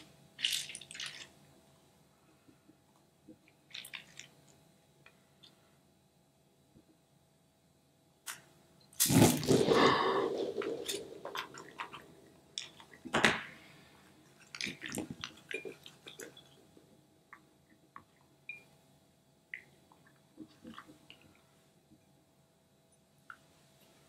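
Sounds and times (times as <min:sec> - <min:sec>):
beads clicking and squishing: 0:00.4 - 0:01.3
gel beads spilling into bowl: 0:00.4 - 0:01.3, 0:09.0 - 0:12.0.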